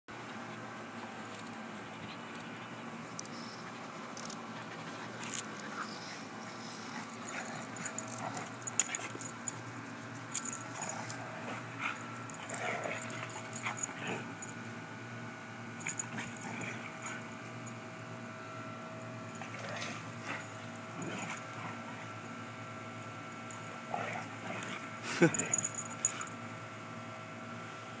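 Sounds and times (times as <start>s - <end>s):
steady background hum: 0.1s - 28.0s
dogs growling and whining: 3.4s - 9.4s, 10.3s - 14.5s, 15.8s - 17.6s, 19.3s - 22.2s, 23.5s - 26.4s.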